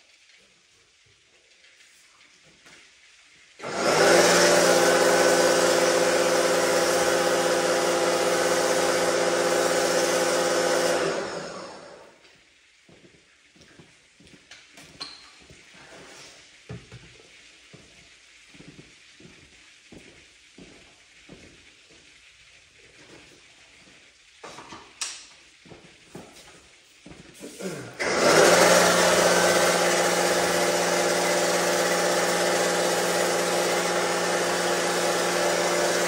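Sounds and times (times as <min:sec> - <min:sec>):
pressure washer motor humming: 0:03.6 - 0:12.2, 0:27.4 - 0:36.0
water dripping: 0:12.2 - 0:27.4.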